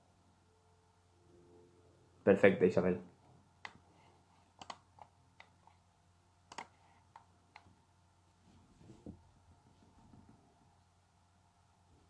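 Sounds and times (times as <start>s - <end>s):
faint irregular clicks: 3.6s - 5.8s, 6.4s - 7.8s
soft low rustle: 8.2s - 10.8s.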